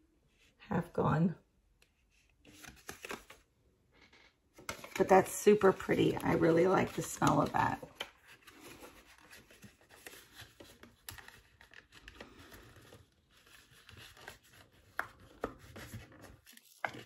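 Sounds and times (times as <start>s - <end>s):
packaging clicks and rustles: 4.6s - 17.0s.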